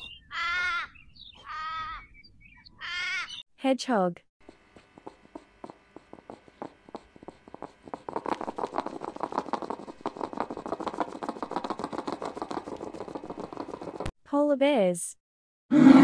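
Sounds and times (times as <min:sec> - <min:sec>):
hedgehog sniffing and snuffling: 0:04.4 - 0:14.1.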